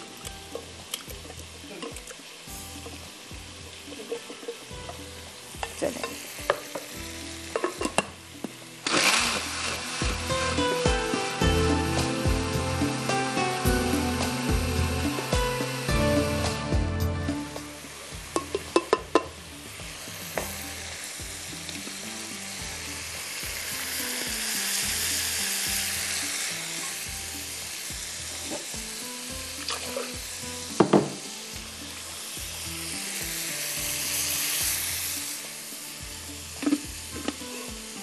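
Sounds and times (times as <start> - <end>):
curry sizzling in a pan: 0.0 - 38.0.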